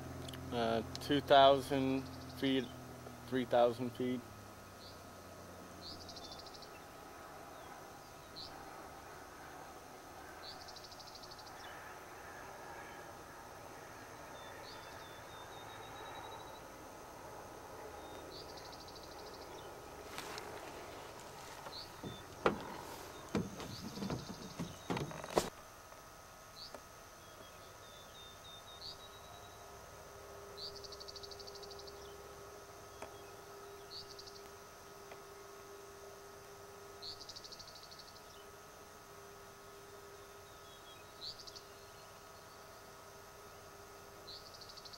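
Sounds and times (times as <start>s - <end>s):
insect and bird trills: 0.0s - 44.9s
low steady hum: 0.0s - 44.9s
sharp knocks and bumps: 21.6s - 25.5s.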